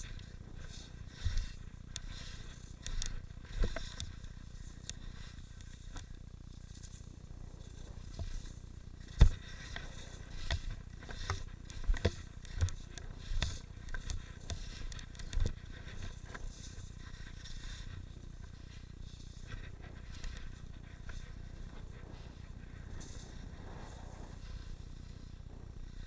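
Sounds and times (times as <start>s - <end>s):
steady low rumble: 0.0s - 26.0s
skis scraping on snow: 9.1s - 26.0s.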